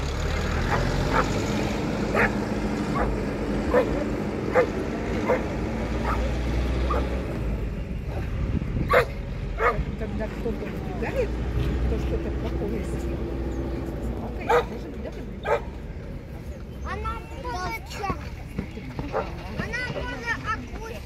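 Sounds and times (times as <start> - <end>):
dog barking: 0.7 - 1.4, 2.1 - 6.3, 6.9 - 7.1, 8.9 - 9.8, 14.4 - 14.8, 15.4 - 15.7.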